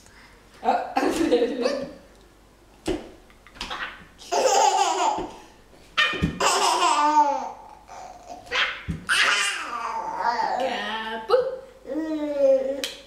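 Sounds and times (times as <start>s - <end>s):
toddler laughing and squealing: 6.0s - 10.6s.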